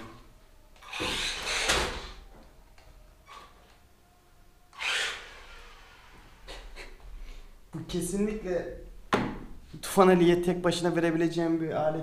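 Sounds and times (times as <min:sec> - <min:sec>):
toy truck electric motor whirring: 0:00.8 - 0:02.2, 0:04.7 - 0:06.4.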